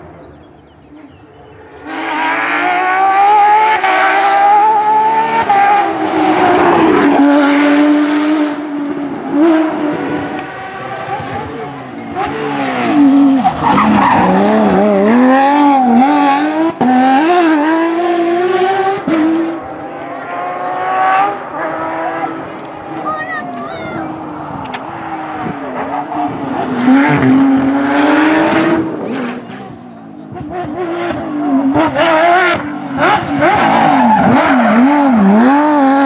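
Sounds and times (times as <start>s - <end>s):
rally car engines at speed: 0.0s - 36.0s.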